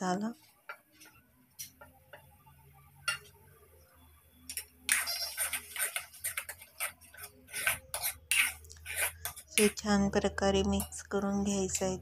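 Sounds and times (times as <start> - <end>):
spatula scraping in a pan: 0.3 - 1.9, 4.5 - 12.0.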